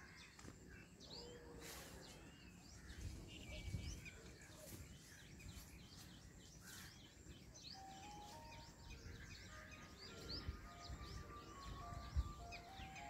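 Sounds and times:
small birds chirping: 0.0s - 13.0s
melody of held tones: 7.7s - 13.0s.

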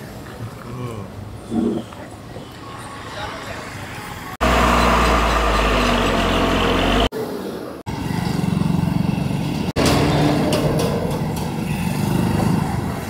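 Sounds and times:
outdoor roadside noise: 0.0s - 13.0s
engine humming: 4.4s - 7.1s.

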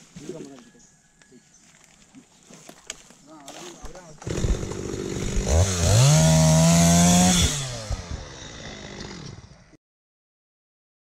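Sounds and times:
chainsaw idling and revving: 4.1s - 9.8s.

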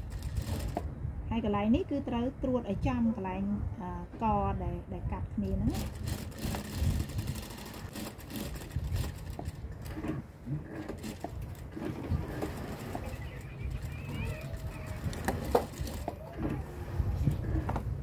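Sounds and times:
sewing machine humming: 0.0s - 0.8s, 5.7s - 17.6s.

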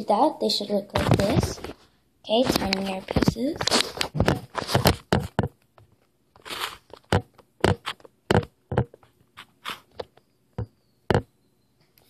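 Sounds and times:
knife chopping on stone: 7.1s - 8.9s.

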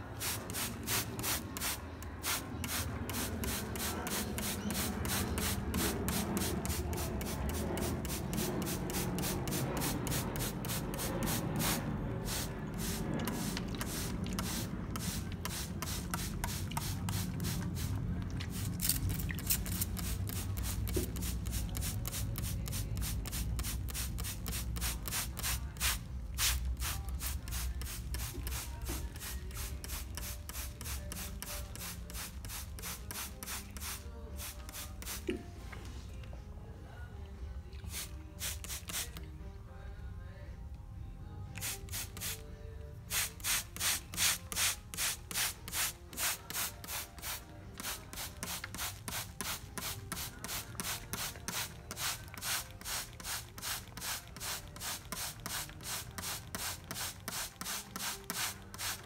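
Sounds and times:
spray bottle squirts: 43.1s - 59.0s.

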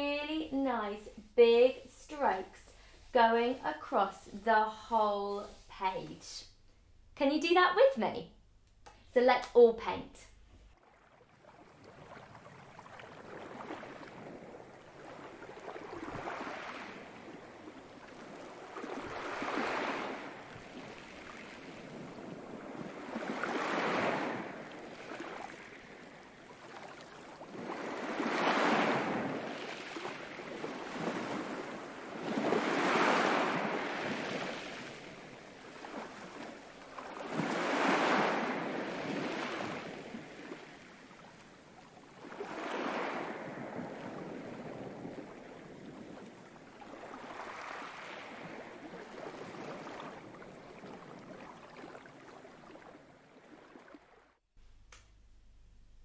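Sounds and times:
sea waves washing in: 10.8s - 54.2s.

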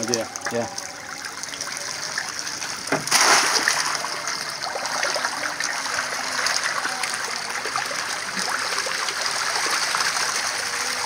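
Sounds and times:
fish splashing at water surface: 0.0s - 11.0s
loud splash: 2.4s - 11.0s.

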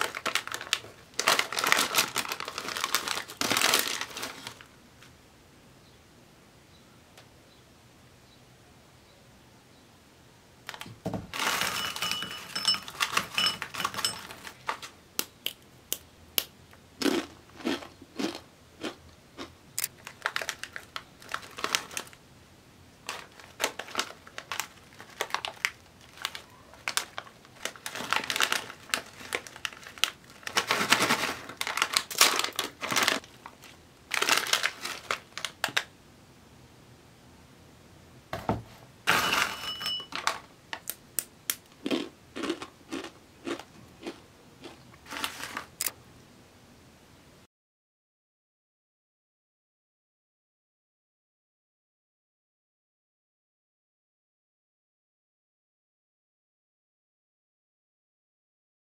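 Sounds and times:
snack bag crinkling: 0.0s - 4.7s, 10.7s - 15.0s, 17.0s - 22.2s, 23.0s - 35.9s, 40.1s - 45.9s.

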